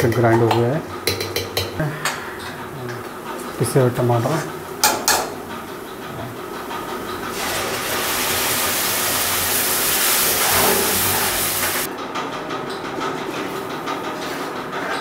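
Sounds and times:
puree sizzling in hot oil: 7.3s - 11.9s.

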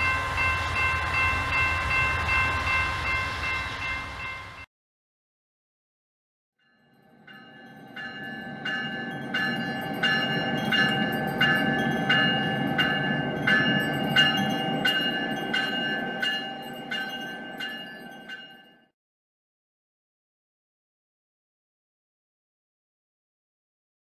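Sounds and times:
locomotive bell ringing: 0.0s - 4.7s, 6.7s - 18.9s
train rumbling: 0.0s - 4.7s, 7.2s - 18.5s.

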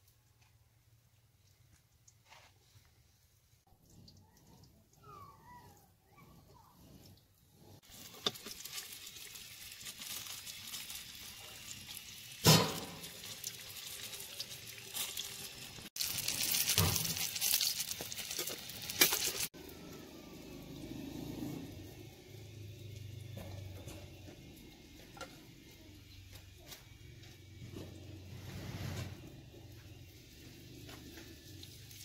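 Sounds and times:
food frying in hot oil: 7.8s - 26.4s, 27.2s - 32.0s.

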